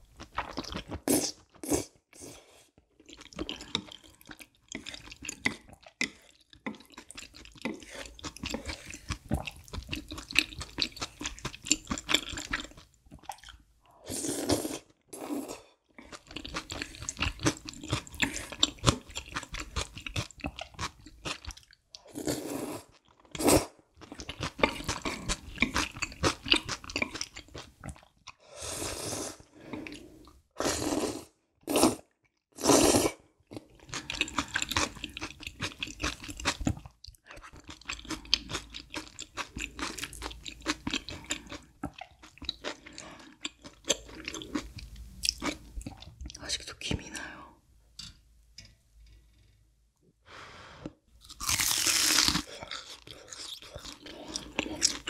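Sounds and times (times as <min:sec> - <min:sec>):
slurping noodles: 0:28.6 - 0:32.0, 0:32.6 - 0:33.2
wet chewing with mouth clicks: 0:33.8 - 0:46.5.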